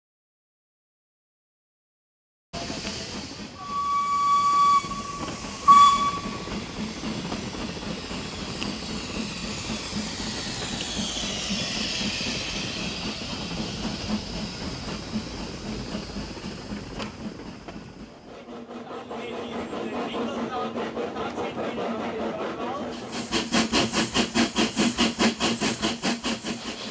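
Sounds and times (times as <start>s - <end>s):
steam hissing: 2.6s - 20.7s, 22.0s - 26.9s
faint locomotive chuffing: 2.6s - 26.9s
steam locomotive whistle: 3.6s - 6.8s.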